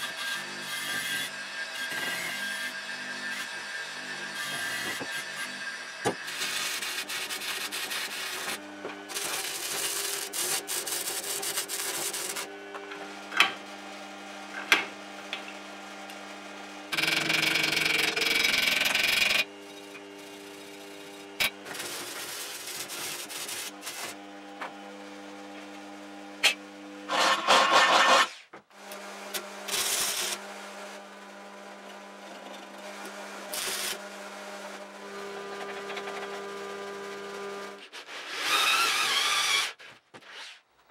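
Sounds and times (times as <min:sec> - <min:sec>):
arc welding crackle: 0:09.1 - 0:12.5.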